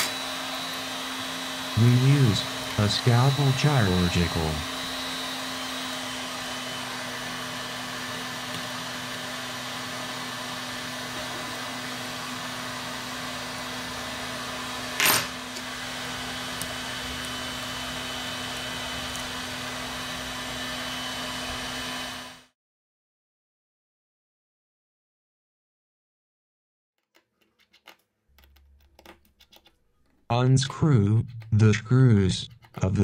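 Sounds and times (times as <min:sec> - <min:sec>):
machine whir with low hum: 0:00.0 - 0:22.5.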